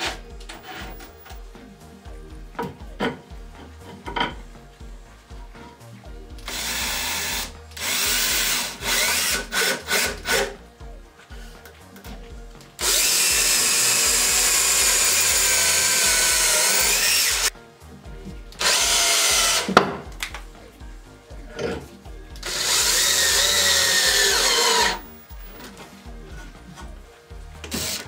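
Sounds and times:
cordless drill drilling into wood: 0.0 - 1.4, 6.5 - 10.6, 12.8 - 17.5, 18.6 - 19.8, 22.4 - 25.6, 27.6 - 28.0.

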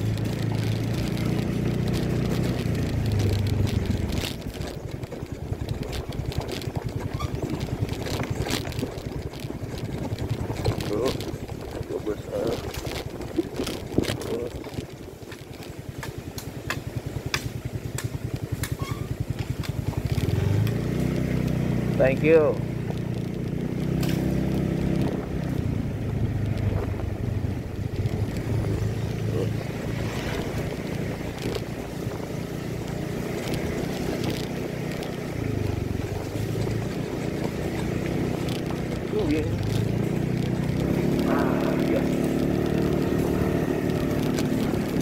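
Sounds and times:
clicks and rattles: 0.0 - 21.6, 27.6 - 45.0
scooter engine puttering: 0.0 - 45.0
wind buffeting microphone: 22.7 - 45.0.

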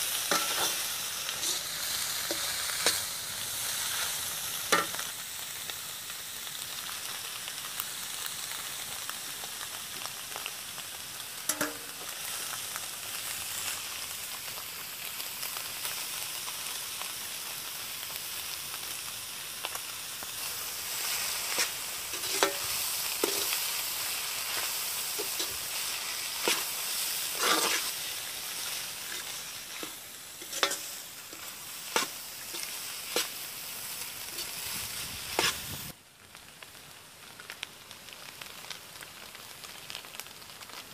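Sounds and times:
blood sizzling in a wok: 0.0 - 40.9
metal ladle clinking and scraping: 0.3 - 0.8, 1.4 - 1.7, 21.6 - 23.6, 27.4 - 27.9, 29.0 - 33.3.

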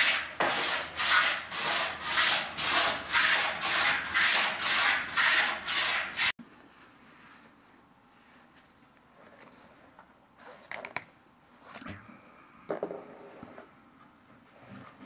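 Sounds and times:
hand plane shaving wood: 0.0 - 6.3.

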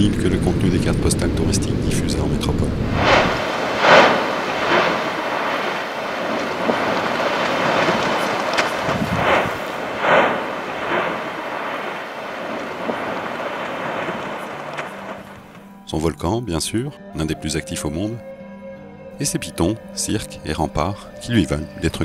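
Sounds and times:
lava fountain gas rushing: 2.7 - 15.7
lava spatter bursts: 2.8 - 15.8.

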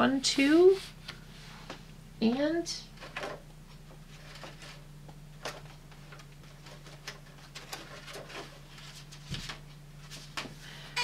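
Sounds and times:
steady low hum: 0.0 - 11.0
paper taps and rustles: 5.4 - 10.6.

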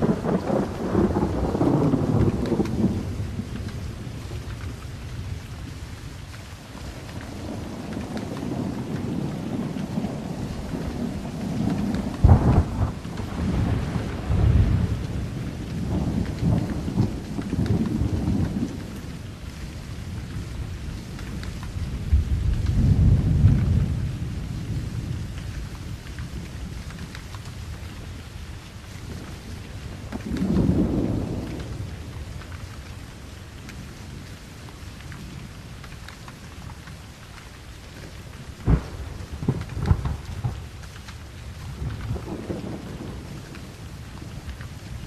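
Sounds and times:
sharp thunderclap: 0.0 - 3.7, 7.3 - 19.0, 22.0 - 25.1, 30.0 - 32.1, 38.6 - 40.7, 41.6 - 44.3
rolling thunder: 0.0 - 5.4, 6.9 - 19.4, 20.1 - 28.1, 28.8 - 32.7, 38.5 - 45.0
steady rain: 0.0 - 45.0.

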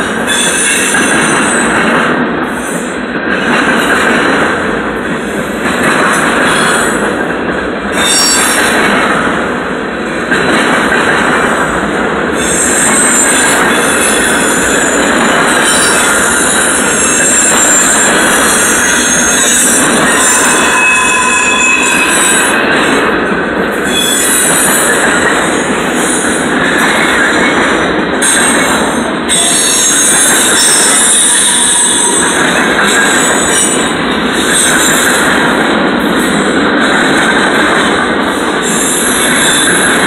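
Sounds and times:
train wheels rumbling and rattling: 0.0 - 40.0
high wheel squeal: 12.4 - 22.7.

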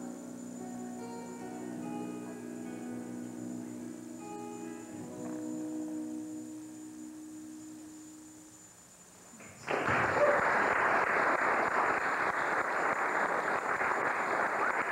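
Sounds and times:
acoustic guitar and cello notes: 0.0 - 9.2
audience applause: 9.5 - 14.9.

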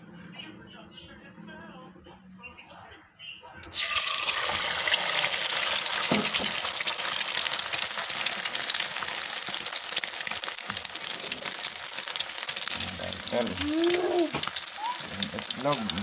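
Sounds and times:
egg sizzling in hot oil: 3.6 - 16.0
oil spitting crackles: 3.6 - 16.0.

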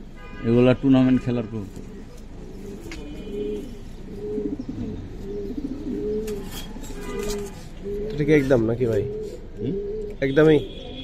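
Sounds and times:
pigeons cooing: 1.7 - 10.3.

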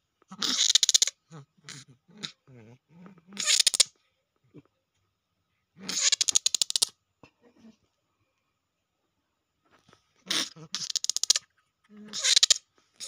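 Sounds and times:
faint low growls: 1.3 - 3.4.

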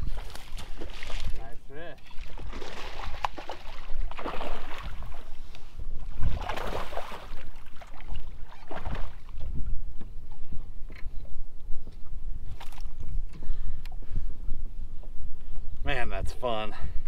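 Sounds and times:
water splashing beside a boat: 0.0 - 10.7
wind rumble on microphone: 0.0 - 17.0.

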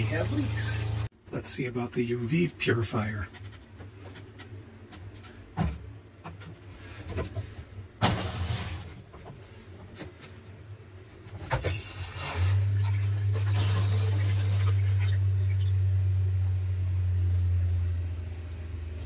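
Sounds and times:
faint low hum: 12.3 - 19.0.

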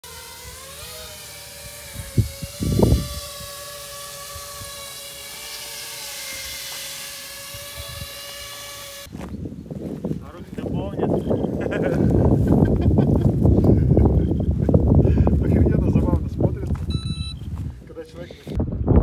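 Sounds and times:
drone propellers whining: 0.0 - 9.4
wind rumble on microphone: 1.6 - 4.9, 7.4 - 8.4, 9.1 - 19.0.

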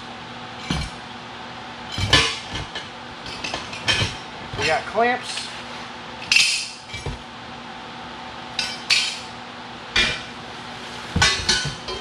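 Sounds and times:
metal clamps clanking: 0.6 - 1.0, 1.9 - 5.5, 6.2 - 7.2, 11.2 - 12.0.

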